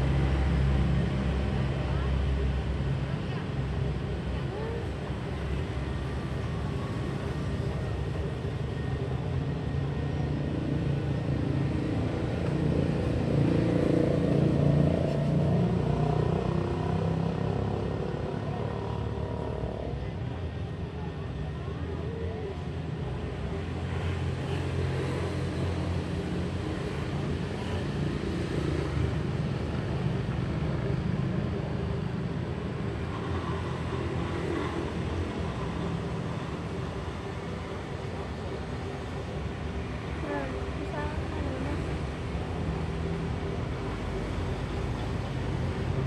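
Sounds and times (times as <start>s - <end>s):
street traffic rumble: 0.0s - 46.0s
faint voices: 0.8s - 14.9s, 29.7s - 43.7s.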